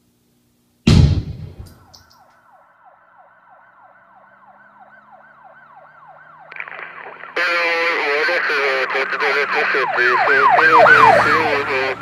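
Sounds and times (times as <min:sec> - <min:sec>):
loud bang: 0:00.9 - 0:01.9
siren warbling: 0:02.5 - 0:12.0.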